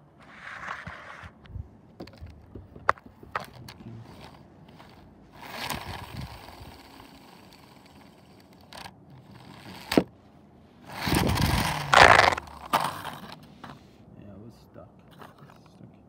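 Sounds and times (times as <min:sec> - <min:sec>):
plastic toy scraping on tile floor: 0:00.2 - 0:01.4, 0:03.4 - 0:10.1, 0:10.8 - 0:13.8
toy being handled: 0:02.0 - 0:10.1, 0:10.8 - 0:13.9.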